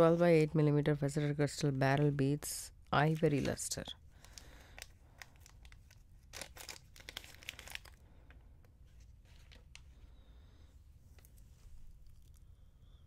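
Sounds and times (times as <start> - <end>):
plastic bag crinkling: 4.1 - 8.4.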